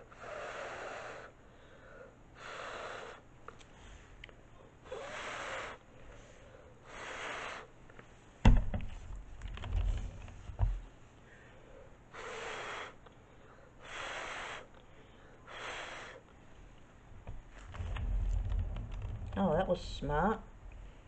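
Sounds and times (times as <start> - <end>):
short puffs of breath: 4.9 - 7.8, 11.3 - 16.3
wooden board knocking and thumping: 8.4 - 10.8.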